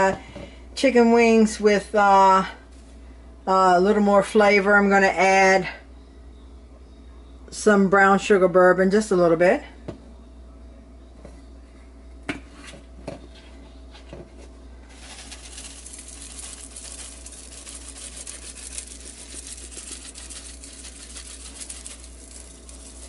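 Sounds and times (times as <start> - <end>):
seasoning granules rattling: 14.9 - 23.0.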